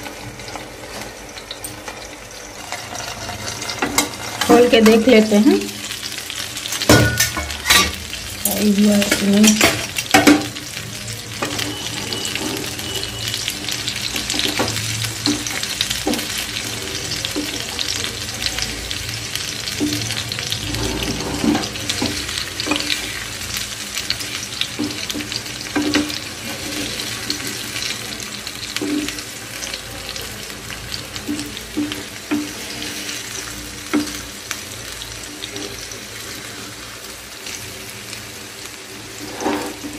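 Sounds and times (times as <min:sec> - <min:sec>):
fish sizzling in hot oil: 0:00.0 - 0:39.9
wooden spatula scraping pan: 0:02.6 - 0:04.5, 0:20.6 - 0:23.2, 0:39.0 - 0:39.9.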